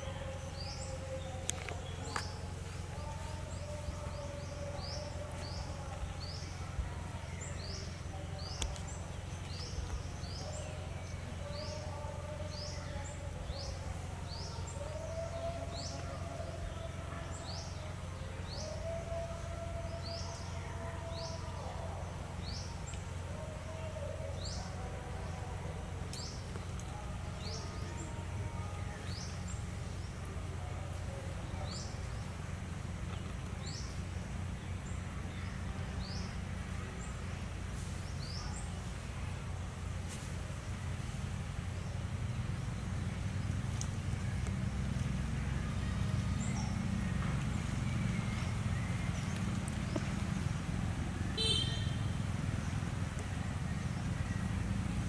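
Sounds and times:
bird chirping: 0:41.7 - 0:55.0.

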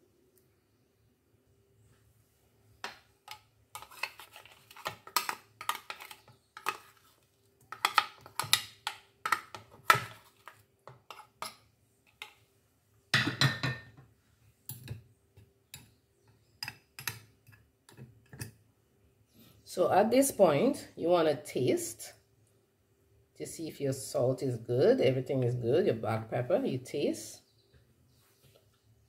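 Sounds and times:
spoon scraping plastic bowl: 0:03.7 - 0:11.6.

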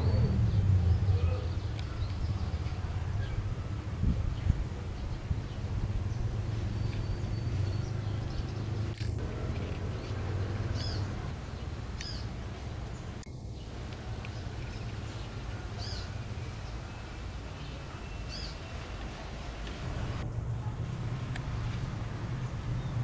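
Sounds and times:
low hum: 0:19.9 - 0:23.0.

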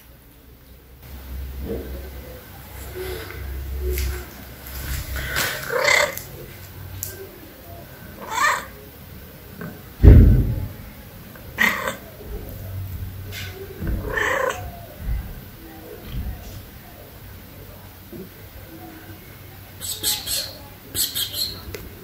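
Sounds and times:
cat meowing: 0:05.6 - 0:06.2, 0:08.2 - 0:08.7, 0:11.6 - 0:12.0, 0:13.9 - 0:14.9
loud low thump: 0:10.0 - 0:10.9.

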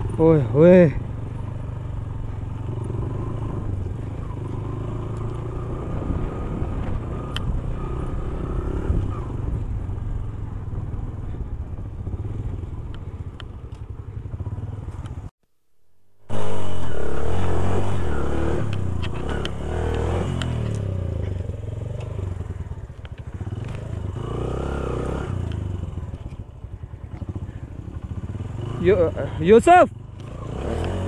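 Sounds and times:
motorcycle engine at low revs: 0:00.0 - 0:31.0.

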